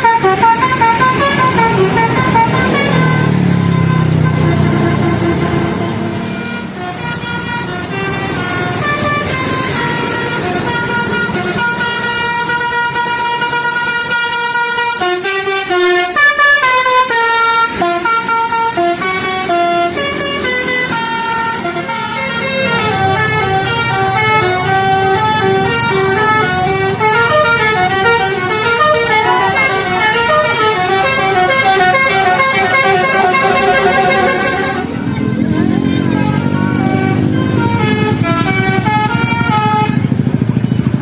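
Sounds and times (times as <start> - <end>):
bus musical horns playing tunes: 0.0 - 41.0
engines and traffic hum: 0.0 - 41.0.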